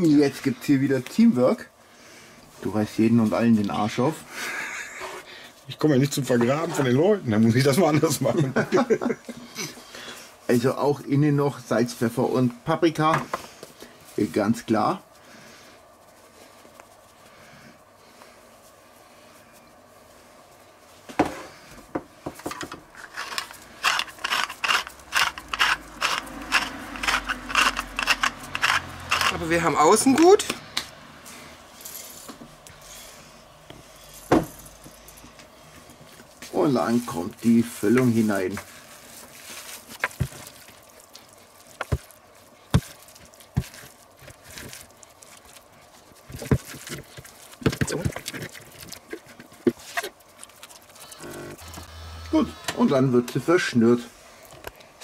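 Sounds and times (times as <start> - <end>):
spice mill grinding: 22.9 - 30.4
squishing filling by hand: 37.5 - 51.4.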